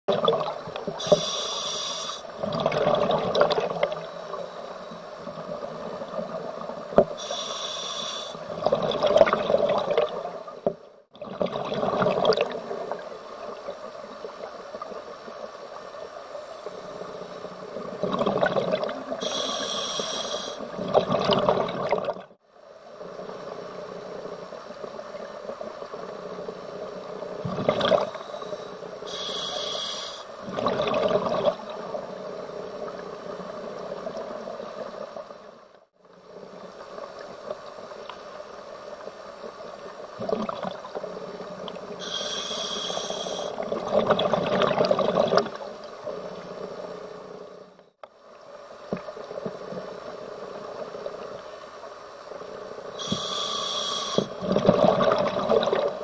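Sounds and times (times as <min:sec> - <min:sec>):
exhaled bubbles gurgling: 0:00.1 - 0:04.4, 0:05.2 - 0:10.4, 0:11.1 - 0:13.7, 0:17.7 - 0:22.4, 0:26.8 - 0:34.6, 0:40.1 - 0:46.4, 0:53.0 - 0:56.0
regulator hissing inhalation: 0:01.0 - 0:02.3, 0:07.2 - 0:08.4, 0:19.2 - 0:20.7, 0:28.1 - 0:30.4, 0:42.0 - 0:43.6, 0:53.0 - 0:54.4.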